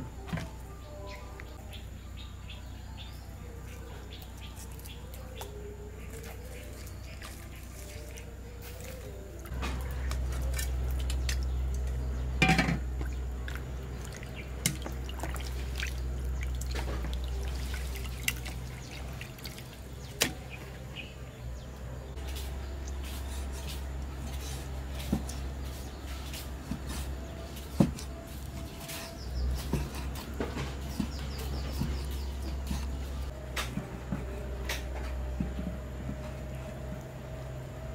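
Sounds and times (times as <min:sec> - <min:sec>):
water dripping and splashing: 0:06.1 - 0:12.0, 0:13.0 - 0:20.6.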